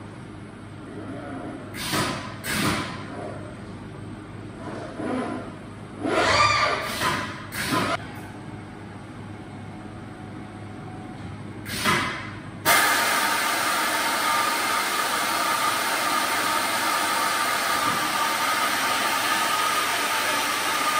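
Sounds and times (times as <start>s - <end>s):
short pneumatic hiss: 1.8s - 2.9s, 6.8s - 8.0s, 11.6s - 13.8s.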